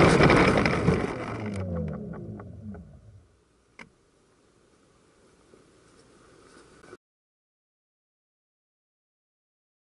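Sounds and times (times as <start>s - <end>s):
airplane rolling on grass: 0.0s - 3.3s
propeller spinning down whine: 0.0s - 3.4s.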